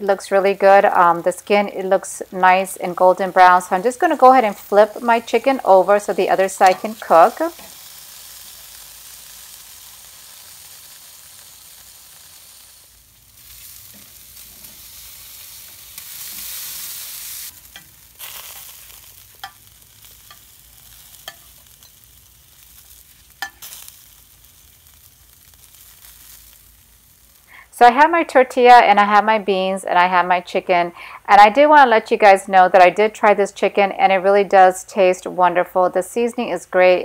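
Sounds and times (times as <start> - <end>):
chicken sizzling on grill: 0.0 - 28.0
tongs clicking on grate: 19.4 - 20.5, 21.1 - 22.0, 23.3 - 23.8.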